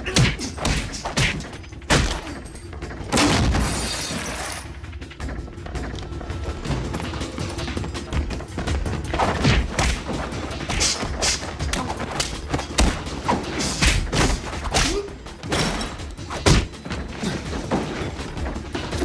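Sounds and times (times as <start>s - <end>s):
music: 0.0s - 19.0s
fight blows and thuds: 9.0s - 18.0s.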